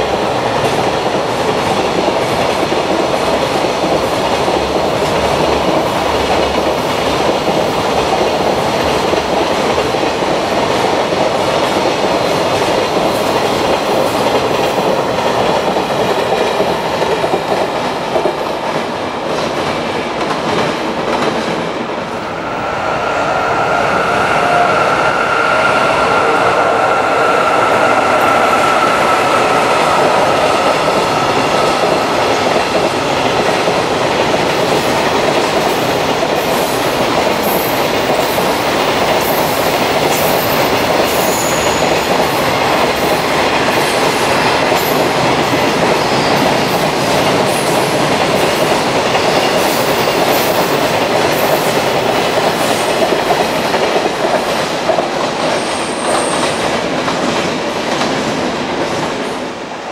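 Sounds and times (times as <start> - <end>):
steady high-pitched tone: 21.9 - 33.2.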